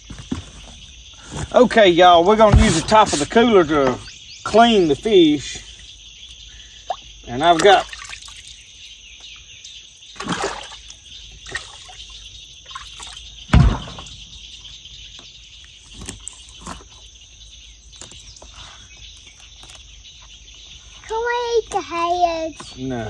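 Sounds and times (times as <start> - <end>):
water sloshing in cooler: 0.0 - 18.6
plastic cooler lid thump: 2.4 - 4.0, 13.5 - 14.3.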